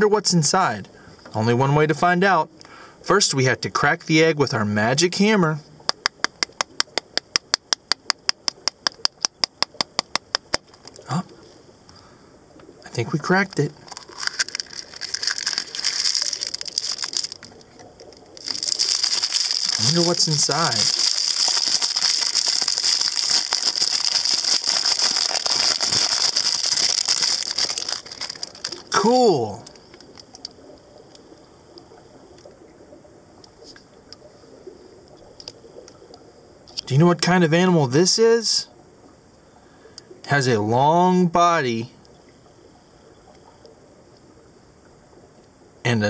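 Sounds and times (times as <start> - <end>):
foil wrapper crinkling: 13.8 - 29.0.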